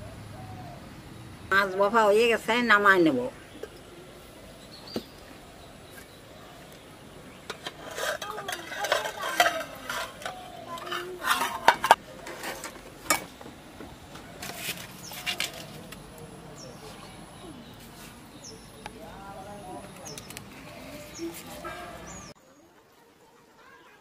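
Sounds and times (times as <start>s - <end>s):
metal lid and tongs clinking on pot: 7.5s - 13.3s.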